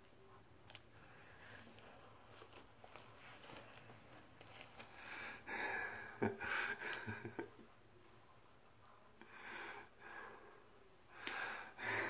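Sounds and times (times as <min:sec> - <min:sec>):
faint rustling and handling clicks: 0:00.0 - 0:05.1
man laughing breathily: 0:05.2 - 0:07.6.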